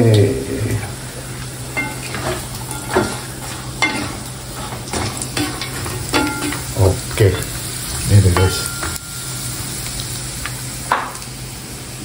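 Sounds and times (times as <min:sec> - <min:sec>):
food sizzling in a wok: 0:00.0 - 0:12.0
wooden spatula scraping pan: 0:01.8 - 0:07.6.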